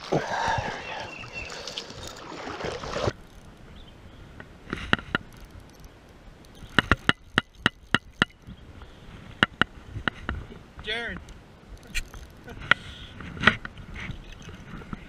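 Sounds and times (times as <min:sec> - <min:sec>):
rushing splashing water: 0:00.0 - 0:03.2
sharp ticking clicks: 0:03.1 - 0:08.6, 0:11.2 - 0:12.8.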